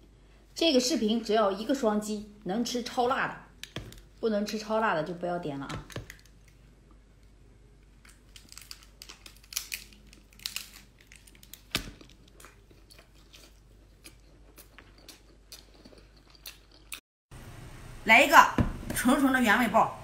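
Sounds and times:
chewing and biting food: 0:08.1 - 0:17.0.

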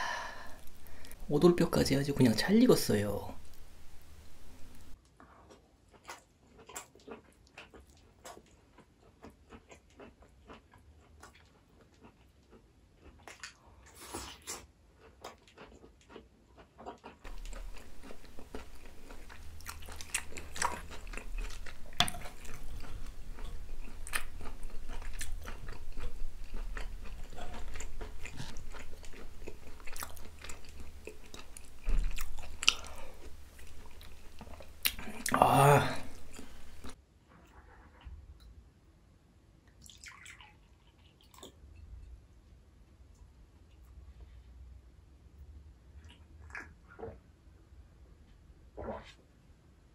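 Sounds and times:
close chewing and biting: 0:04.6 - 0:37.0.

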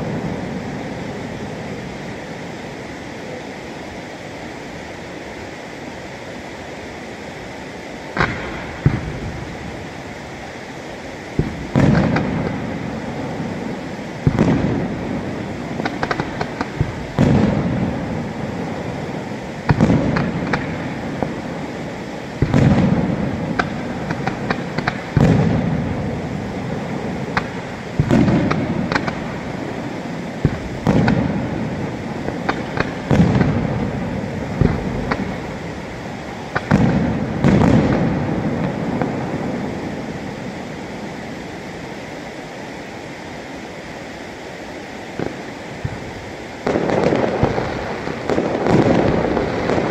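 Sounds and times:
background hiss: 0:00.0 - 0:49.9
firework cracks and crackles: 0:00.0 - 0:49.9
firework shells bursting: 0:08.1 - 0:42.3, 0:45.1 - 0:49.9.

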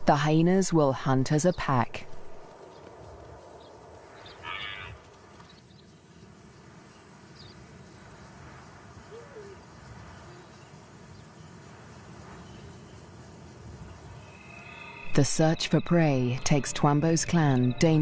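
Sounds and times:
insects droning: 0:01.3 - 0:18.0
brief animal call: 0:04.3 - 0:05.0.

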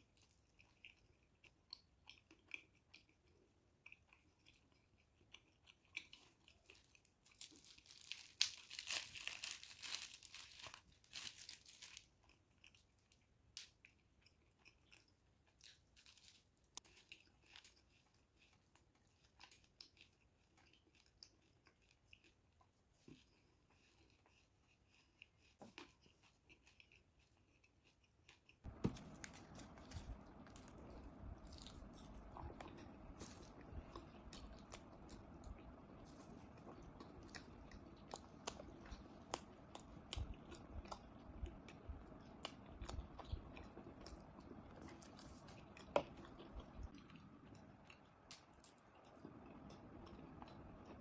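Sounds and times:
chewing and crunching sweets: 0:00.0 - 0:51.0
steady low hiss: 0:28.7 - 0:51.0.

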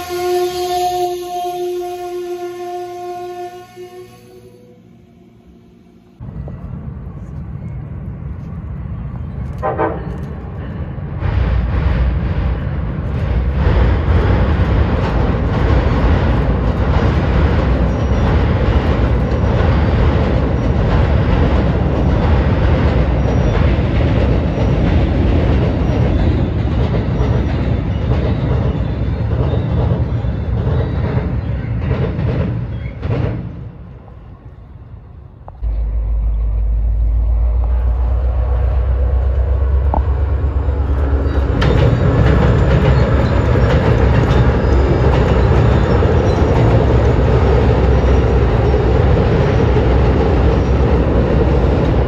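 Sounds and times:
train wheels rumbling on rails: 0:06.2 - 0:52.0
wheels clacking over rail joints: 0:09.2 - 0:34.0, 0:37.5 - 0:52.0
steady low rumble: 0:34.8 - 0:44.3.

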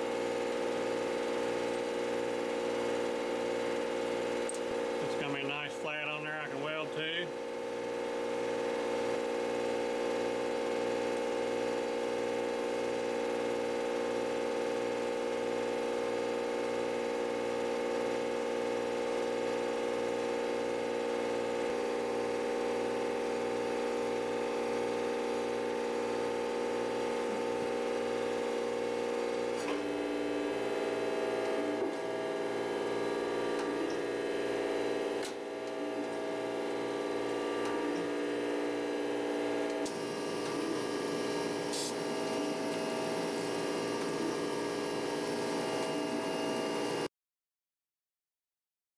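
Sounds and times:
surface grinder motor hum: 0:29.2 - 0:47.0.

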